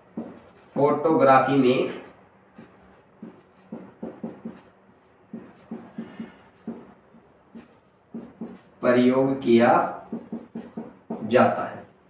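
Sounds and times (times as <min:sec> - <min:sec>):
marker squeaking on whiteboard: 0:00.0 - 0:00.8, 0:01.8 - 0:08.8, 0:09.9 - 0:11.3.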